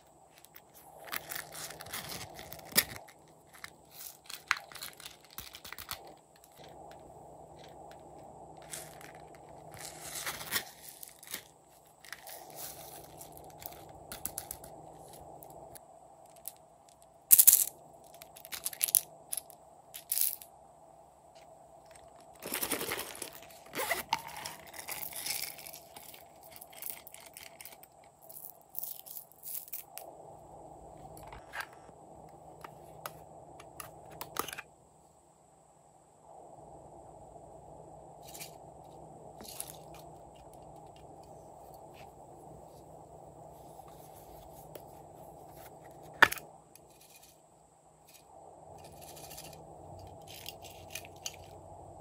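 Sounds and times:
plastic toys crinkling and clicking: 0.0s - 15.2s, 16.3s - 20.5s, 21.9s - 30.0s, 48.8s - 51.6s
faint steady hum: 0.0s - 52.0s.

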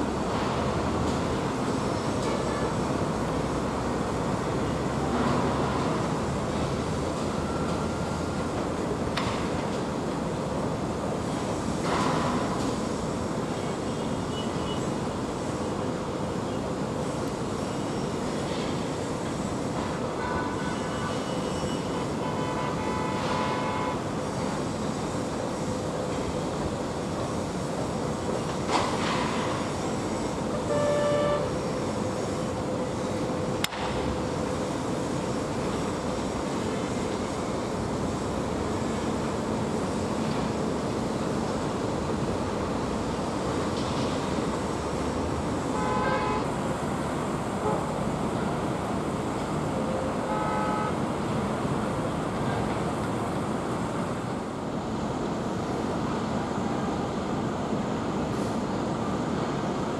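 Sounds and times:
short horn toot: 30.6s - 31.5s.

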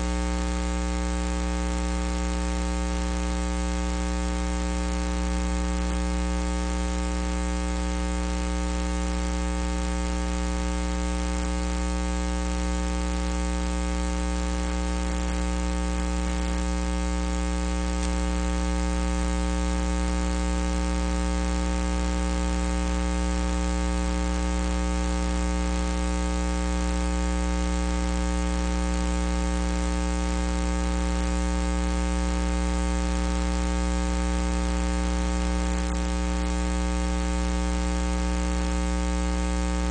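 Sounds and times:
electrical mains hum: 13.1s - 18.4s, 35.5s - 36.5s.

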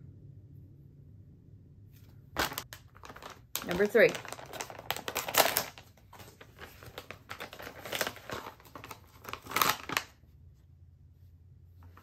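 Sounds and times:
plastic packaging crinkling: 2.4s - 10.2s.

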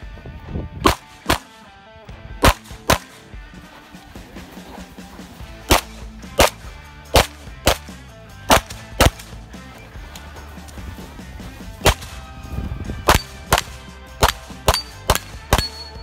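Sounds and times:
pistol shots: 0.8s - 1.6s, 2.4s - 3.3s, 5.6s - 9.4s, 11.8s - 12.3s, 13.0s - 15.9s.

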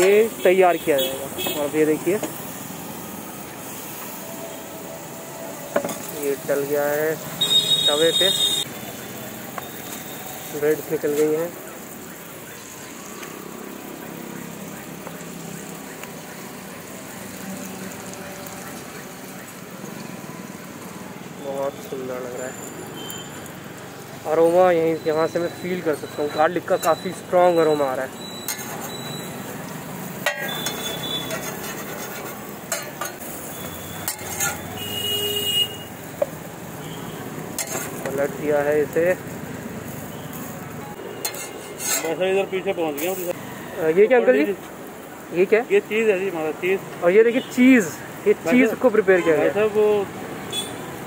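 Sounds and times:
omelette sizzling in oil: 5.8s - 46.3s
spatula scraping on iron griddle: 28.2s - 29.4s, 30.1s - 34.9s, 37.5s - 38.2s, 41.2s - 42.4s.

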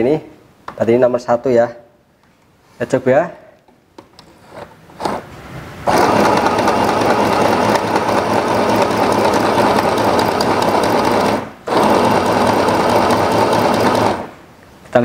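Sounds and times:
electric sewing machine running: 5.0s - 14.4s.

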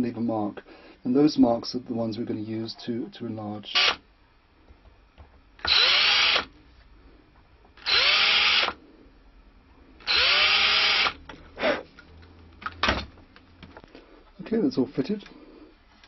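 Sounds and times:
electric drill boring into wood: 3.7s - 4.0s, 5.6s - 6.5s, 7.8s - 8.8s, 10.0s - 11.2s.

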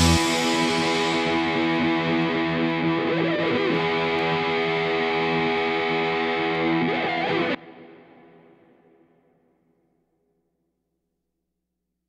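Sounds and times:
music with held chords: 0.0s - 8.6s.

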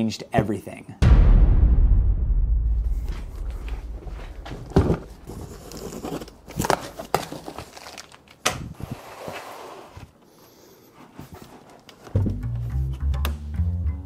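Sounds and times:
box thumping on table: 4.4s - 6.7s
cardboard rustling: 4.5s - 10.2s, 11.0s - 12.4s.

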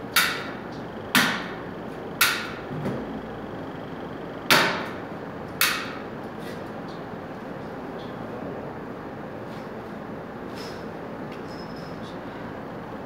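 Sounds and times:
steady background hum: 0.0s - 13.0s
sharp hard knocks: 0.1s - 1.6s, 2.2s - 2.6s, 4.5s - 5.0s, 5.6s - 6.0s.

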